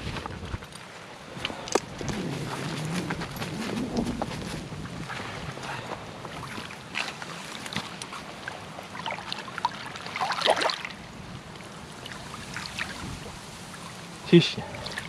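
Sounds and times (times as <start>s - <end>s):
water splashing: 4.9s - 15.0s.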